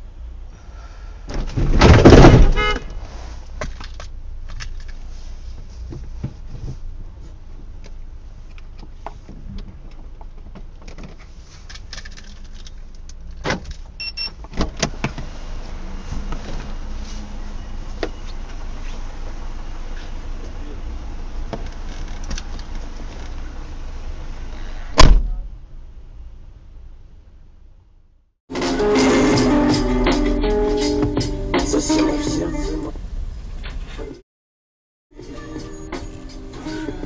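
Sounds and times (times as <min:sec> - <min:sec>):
low car hum: 0:00.0 - 0:34.2
car crash: 0:01.3 - 0:02.8
brief beep: 0:14.0 - 0:14.3.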